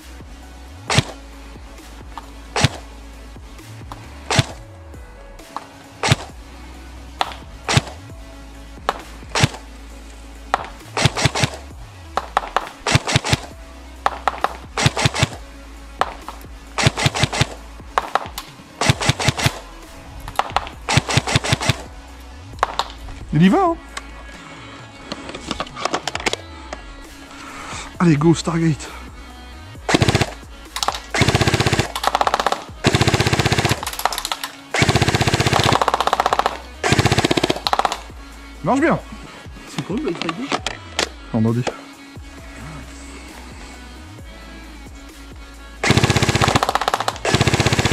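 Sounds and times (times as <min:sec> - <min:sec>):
background music: 0:00.0 - 0:47.9
airsoft gun firing shots: 0:00.9 - 0:01.2, 0:02.6 - 0:02.9, 0:04.3 - 0:04.6, 0:05.5 - 0:06.4, 0:07.2 - 0:08.0, 0:08.8 - 0:09.6, 0:10.5 - 0:15.4, 0:16.0 - 0:19.6, 0:20.3 - 0:21.9, 0:22.6 - 0:23.0, 0:29.9 - 0:38.1, 0:45.8 - 0:47.9.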